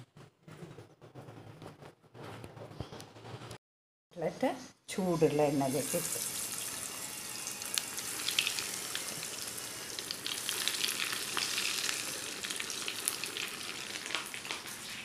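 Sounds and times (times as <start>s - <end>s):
food deep-frying in oil: 5.5s - 15.0s.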